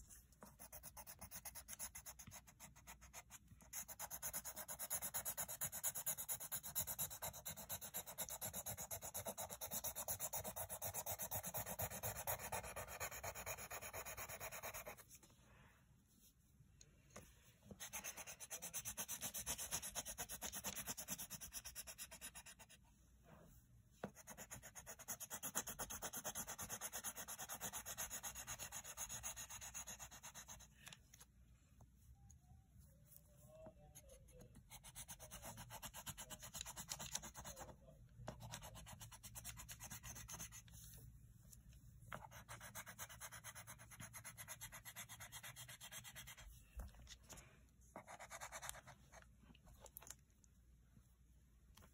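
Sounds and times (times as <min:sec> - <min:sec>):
pencil shading on paper: 0:00.0 - 0:15.2, 0:17.7 - 0:22.8, 0:24.0 - 0:30.7, 0:33.8 - 0:37.7, 0:38.3 - 0:40.8, 0:42.1 - 0:46.6, 0:47.9 - 0:49.2.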